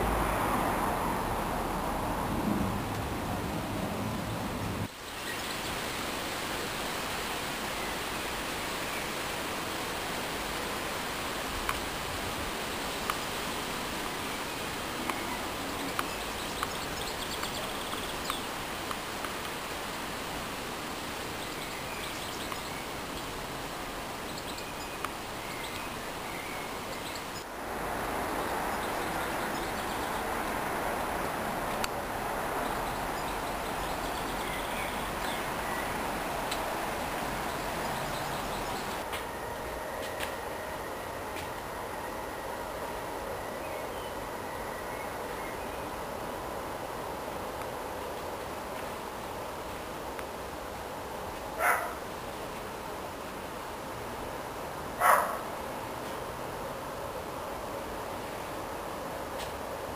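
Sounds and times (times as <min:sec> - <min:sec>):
outdoor background hiss: 0:00.0 - 0:59.9
faint click: 0:11.6 - 0:11.8.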